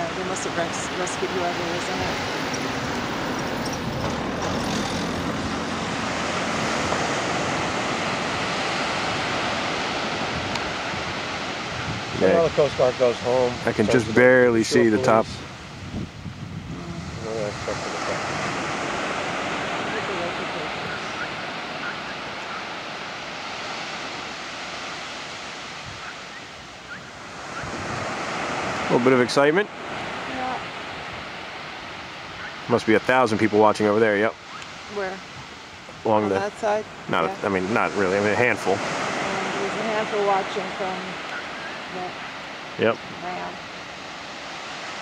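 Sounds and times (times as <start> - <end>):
faint boat outboard engine hum: 0.0 - 32.6
wind buffeting microphone: 0.0 - 32.7
sea surf breaking on rocks: 0.0 - 45.0.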